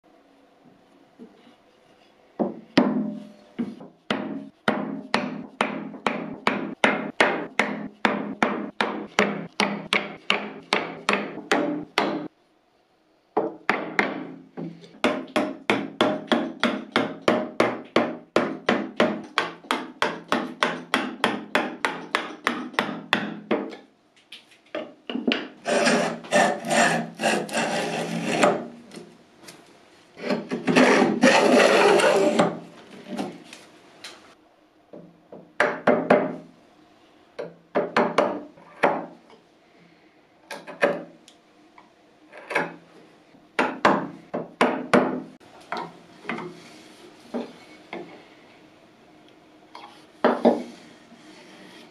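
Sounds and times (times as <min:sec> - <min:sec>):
router plane scraping wood: 0:25.6 - 0:28.7, 0:30.2 - 0:33.2, 0:50.3 - 0:51.9.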